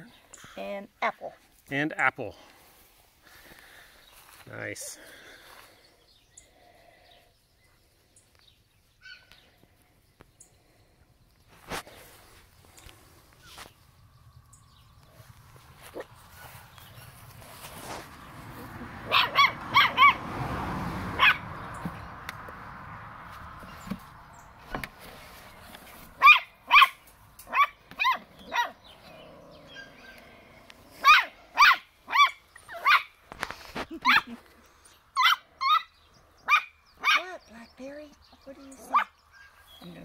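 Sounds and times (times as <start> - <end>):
puppies yapping: 9.0 - 9.4, 15.1 - 20.4, 21.1 - 21.8, 26.0 - 34.4, 35.2 - 37.4.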